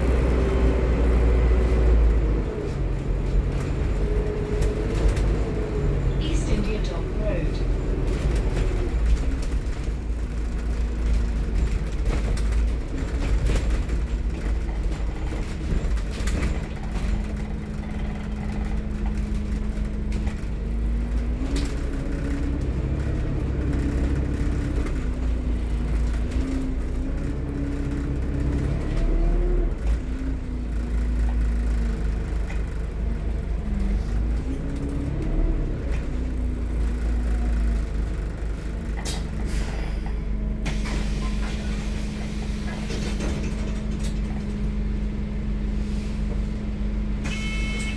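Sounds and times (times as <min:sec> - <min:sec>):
bus engine rumble: 0:00.0 - 0:47.9
rattles and clicks: 0:08.0 - 0:44.7.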